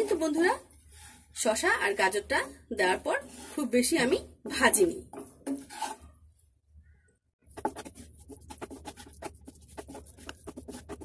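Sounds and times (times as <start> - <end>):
wooden spatula scraping frying pan: 2.4 - 4.0, 5.2 - 6.1.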